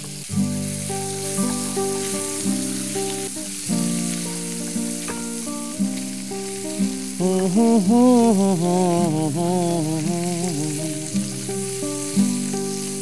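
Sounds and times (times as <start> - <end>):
chicken sizzling in a pan: 0.0 - 13.0
classical guitar playing: 0.0 - 13.0
man singing: 7.1 - 11.4.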